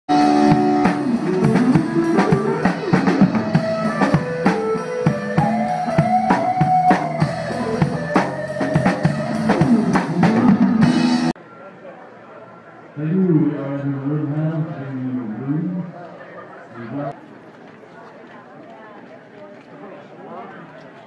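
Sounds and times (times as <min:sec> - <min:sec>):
electric guitars: 0:00.1 - 0:11.3
live band playing: 0:00.1 - 0:11.4.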